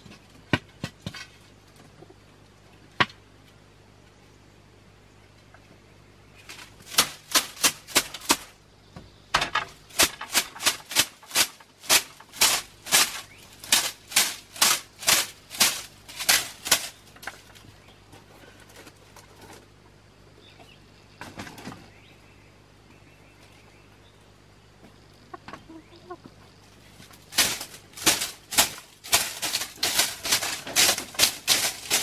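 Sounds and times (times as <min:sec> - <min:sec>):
scraping against bamboo wall: 0:06.4 - 0:08.6, 0:09.3 - 0:19.8, 0:26.8 - 0:32.0.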